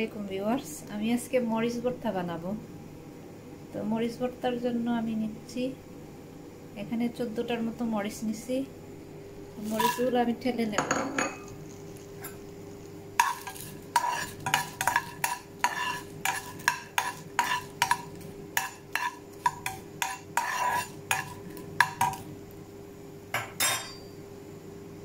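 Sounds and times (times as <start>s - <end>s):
steady low hum: 0.0s - 25.0s
metal spoon scraping frying pan: 9.6s - 10.2s, 13.2s - 22.2s.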